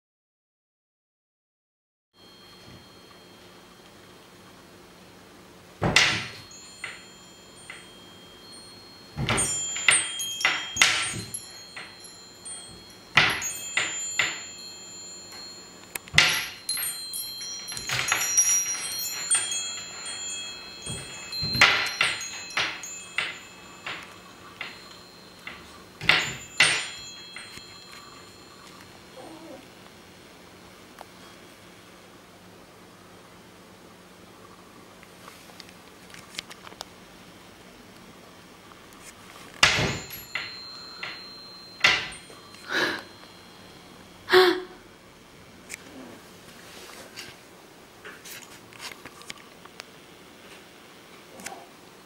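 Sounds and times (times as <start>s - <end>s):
metal wind bell ringing: 2.2s - 4.2s, 6.0s - 29.6s, 39.6s - 44.8s.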